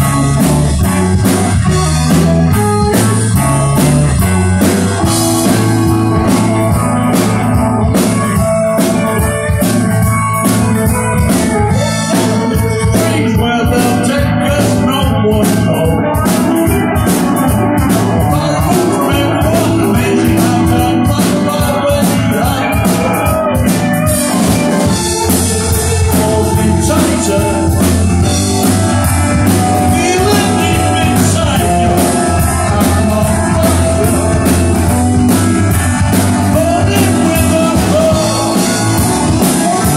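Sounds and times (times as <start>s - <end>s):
distorted electric guitars: 0.0s - 39.9s
driving drum kit: 0.0s - 39.9s
electric bass: 0.0s - 39.9s
man singing lead vocal: 11.6s - 24.1s, 24.8s - 39.9s.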